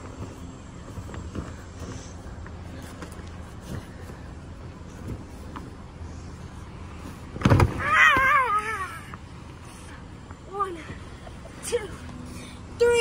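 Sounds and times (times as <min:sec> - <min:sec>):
thump on foam crash mat: 0:07.4 - 0:07.8.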